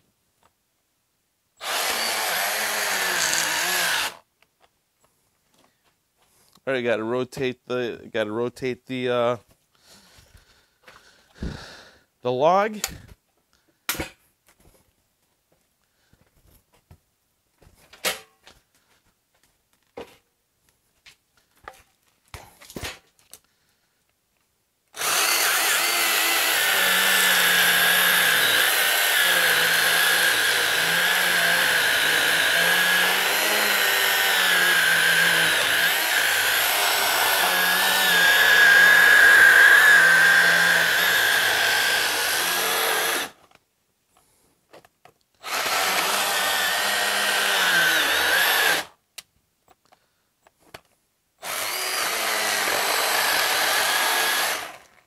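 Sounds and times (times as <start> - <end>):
battery chainsaw cutting wood: 1.6 - 4.3, 25.0 - 43.4, 45.4 - 49.0, 51.4 - 55.0.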